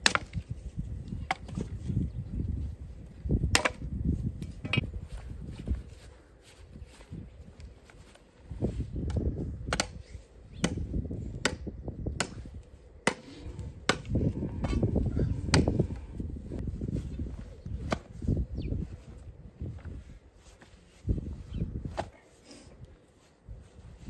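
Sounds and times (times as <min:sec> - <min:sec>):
hand tool striking ground: 0:00.0 - 0:00.4, 0:09.1 - 0:13.3
scraping and rustling of soil: 0:15.8 - 0:24.0.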